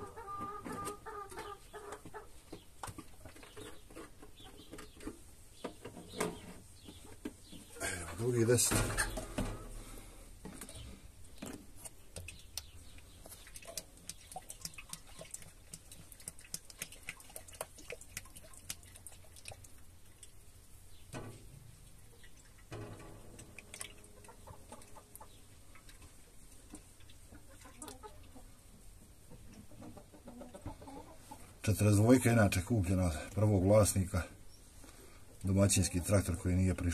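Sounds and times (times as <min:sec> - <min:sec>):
hens clucking: 0:00.0 - 0:09.8, 0:23.4 - 0:33.2, 0:35.4 - 0:36.9
oil glugging from a jerrycan: 0:13.2 - 0:20.3, 0:22.2 - 0:26.1.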